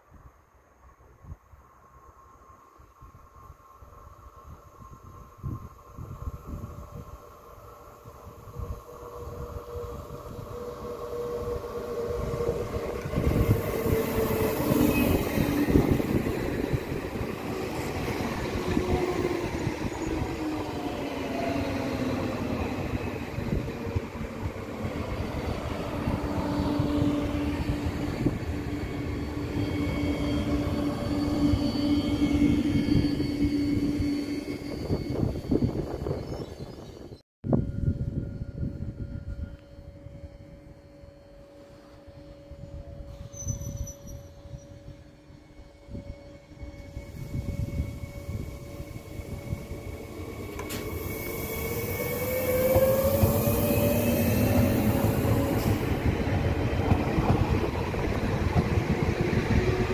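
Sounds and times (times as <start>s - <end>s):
train whine: 0.0s - 59.9s
train wheels rumbling on rails: 9.1s - 37.2s, 41.8s - 59.9s.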